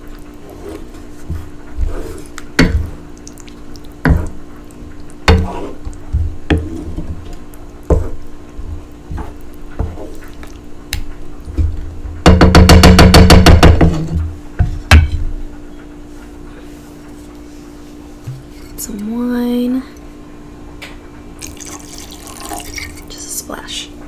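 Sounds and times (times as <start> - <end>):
steady low hum: 0.0 - 24.0
spatula stirring thick sauce: 3.5 - 7.1
spatula knocking against pan: 12.2 - 15.2.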